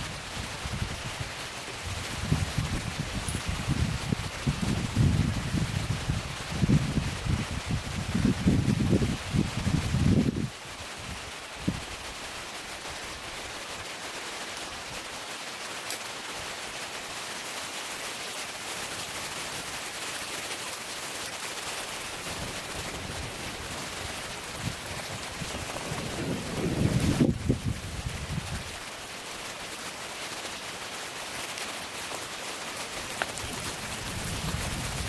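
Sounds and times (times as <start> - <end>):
wind buffeting microphone: 0.0 - 11.9, 22.2 - 28.8, 33.0 - 35.0
wind hiss: 0.0 - 35.0.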